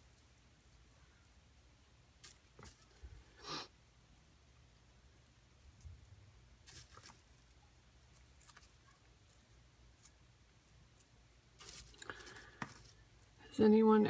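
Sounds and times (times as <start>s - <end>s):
faint ticks and rustles: 5.1s - 13.6s.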